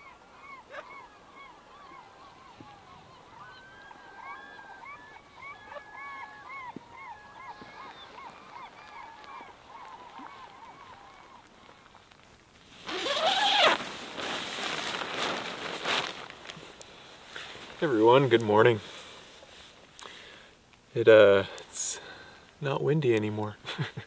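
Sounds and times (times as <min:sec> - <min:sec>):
flock of birds calling: 0:00.0 - 0:12.0.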